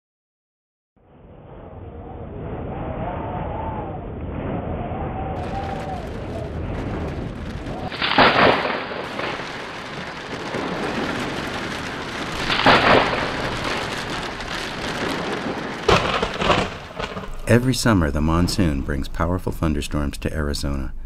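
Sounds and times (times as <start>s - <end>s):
thunder claps: 2.2s - 21.0s
heavy rain downpour: 5.4s - 18.7s.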